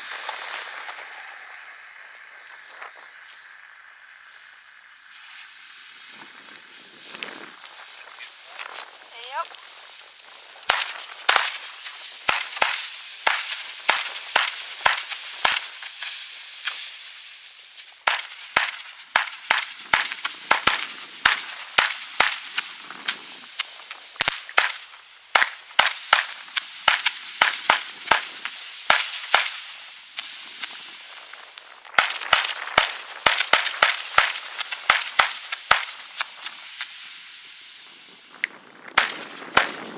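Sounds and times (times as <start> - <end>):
crackling hiss of fireworks: 0.0 - 39.9
firework bangs: 0.0 - 39.9.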